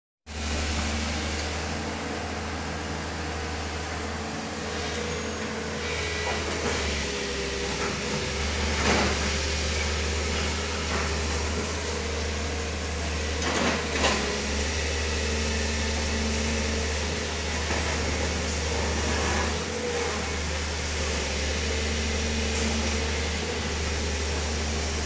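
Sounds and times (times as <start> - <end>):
excavator diesel engine humming: 0.3 - 25.0.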